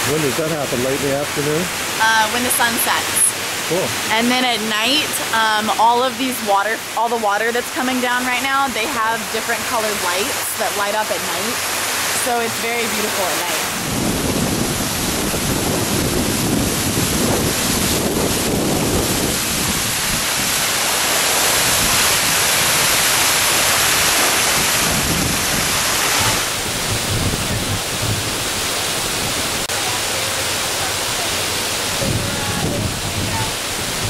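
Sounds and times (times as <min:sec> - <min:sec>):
fountain water splashing: 0:00.0 - 0:34.0
wind rumble on microphone: 0:13.2 - 0:29.7, 0:31.5 - 0:34.0.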